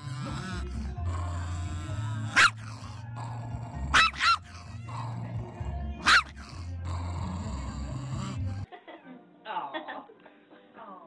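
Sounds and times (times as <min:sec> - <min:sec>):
small dog barking: 0:02.2 - 0:02.9, 0:03.9 - 0:04.7, 0:06.0 - 0:06.6.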